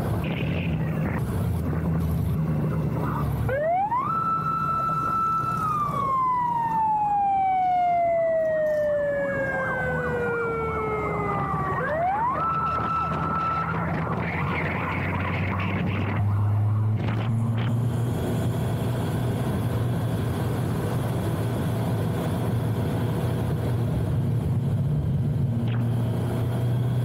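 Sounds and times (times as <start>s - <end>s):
siren wailing: 3.0s - 17.9s.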